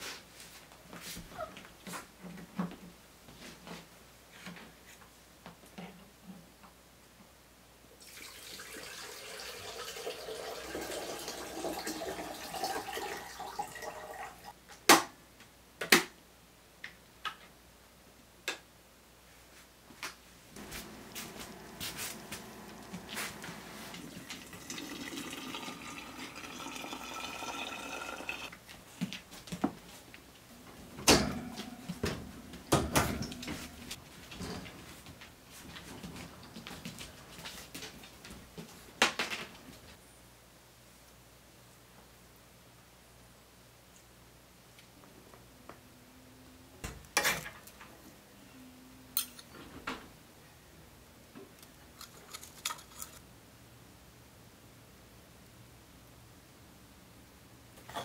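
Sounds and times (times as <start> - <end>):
water pouring into container: 8.0 - 14.5, 20.9 - 28.5.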